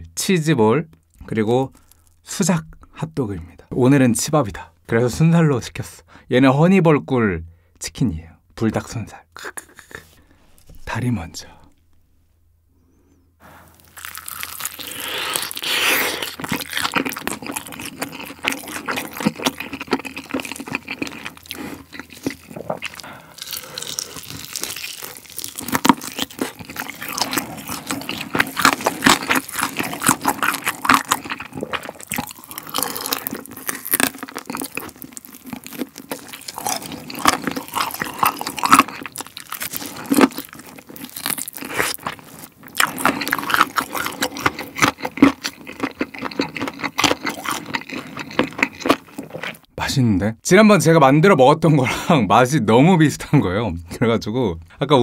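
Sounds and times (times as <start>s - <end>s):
crunching fried chicken: 1.2s - 2.2s, 13.7s - 49.7s.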